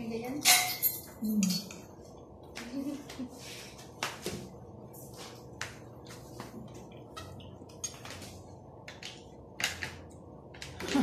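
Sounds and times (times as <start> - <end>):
metal spoon clinking in glass cup: 0.4 - 1.8.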